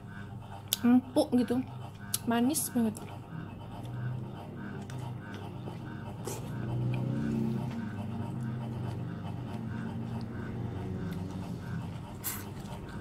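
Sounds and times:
low steady hum: 0.0 - 13.0
person chewing: 0.6 - 0.8.

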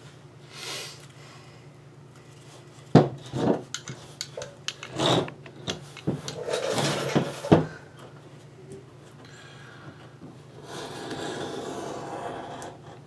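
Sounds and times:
cardboard rubbing and scraping: 10.6 - 12.9.

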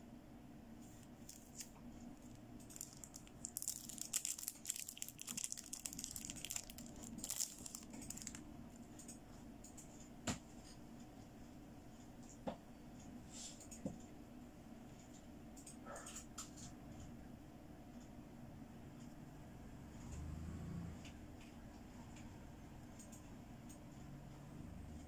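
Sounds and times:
crinkly plastic rustling: 0.9 - 8.4.

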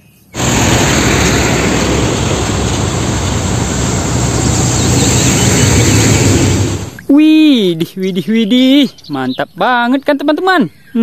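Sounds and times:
truck engine drone: 0.4 - 7.0
road noise: 0.4 - 7.1.

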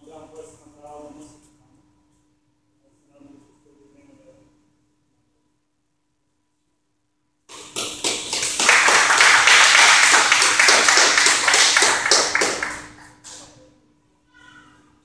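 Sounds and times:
small group applauding: 7.5 - 13.6.

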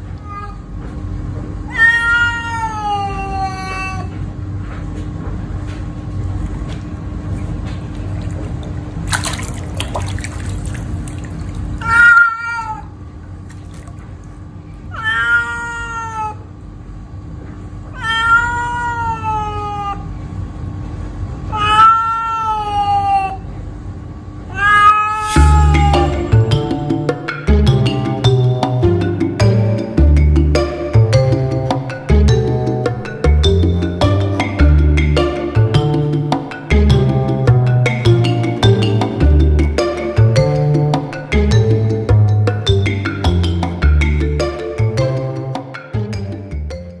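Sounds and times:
cat meowing loudly: 0.2 - 0.7, 1.7 - 4.2, 11.8 - 13.0, 14.9 - 16.5, 17.9 - 20.1, 21.5 - 23.5, 24.5 - 26.5.

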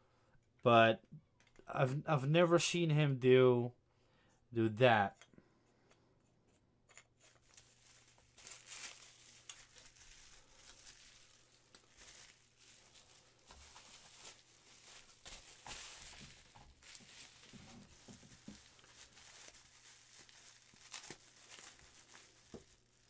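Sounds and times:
bubble wrap crinkling: 7.2 - 23.0.

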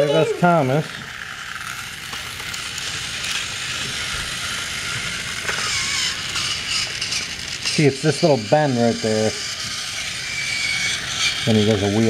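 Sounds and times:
toy train motors whirring: 0.0 - 12.0.

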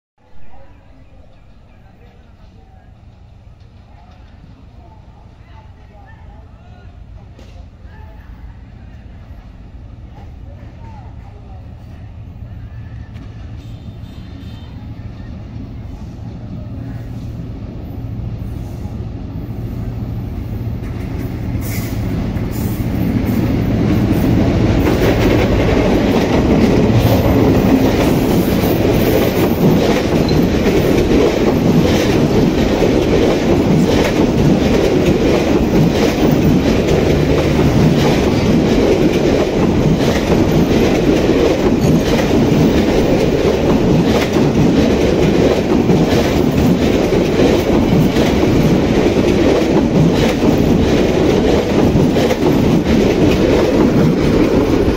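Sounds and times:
passenger train passing: 0.2 - 54.9
wheels clacking over rail joints: 23.2 - 54.9.

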